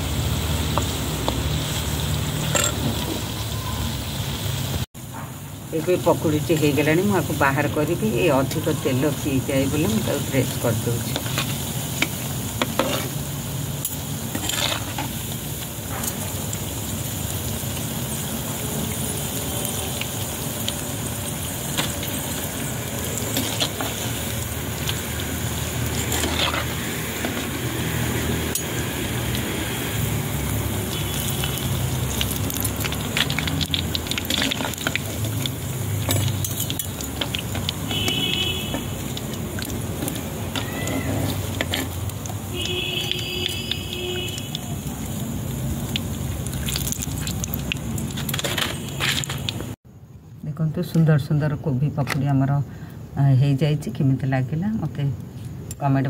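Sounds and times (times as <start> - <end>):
food deep-frying in oil: 0.0 - 49.9
metal spoon scraping pot: 11.0 - 13.2, 13.8 - 15.2, 23.1 - 25.0, 25.6 - 28.9, 40.0 - 42.1.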